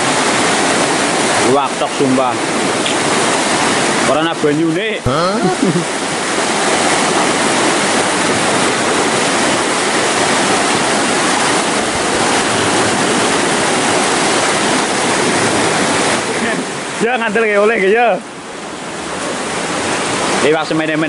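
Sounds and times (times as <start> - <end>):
whitewater rushing: 0.0 - 21.0.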